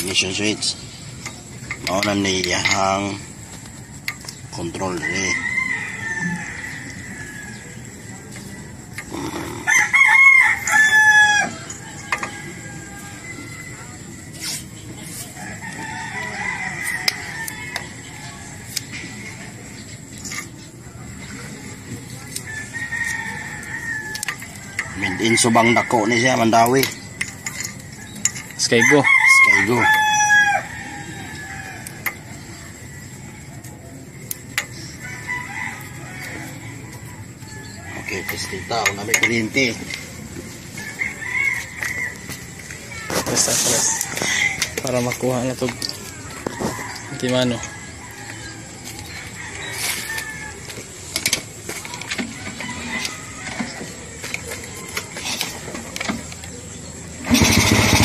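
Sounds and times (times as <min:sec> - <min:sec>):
rooster crowing: 0:04.5 - 0:14.6, 0:15.3 - 0:19.7, 0:22.4 - 0:56.5.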